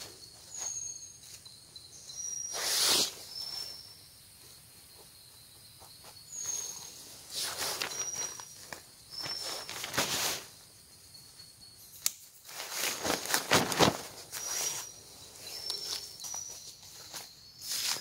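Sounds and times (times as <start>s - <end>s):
insects chirping: 0.0s - 18.0s
rustling and scraping: 5.8s - 10.5s, 12.4s - 18.0s.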